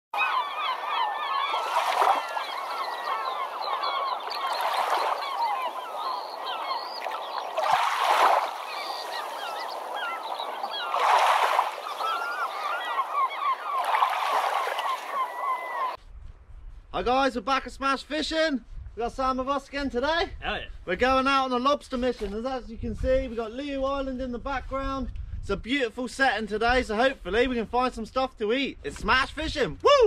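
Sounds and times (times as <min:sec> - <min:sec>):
birds squawking and chirping: 0:00.2 - 0:16.0.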